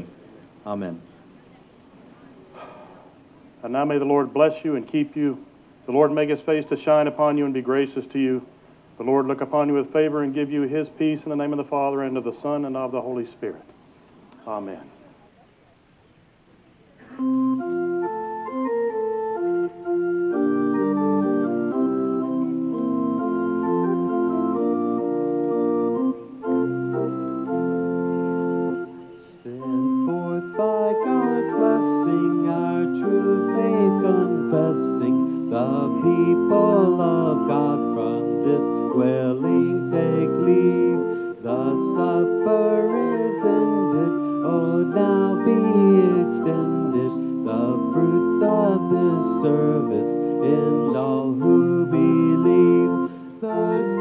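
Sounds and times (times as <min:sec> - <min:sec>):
organ playing hymn chords: 0:00.0 - 0:00.9, 0:03.6 - 0:13.3, 0:17.0 - 0:54.0
voices singing: 0:19.9 - 0:54.0.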